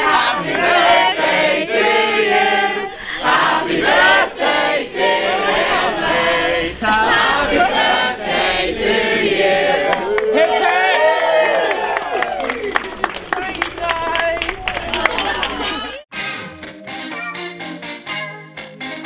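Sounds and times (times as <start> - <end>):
group of people singing: 0.0 - 10.7.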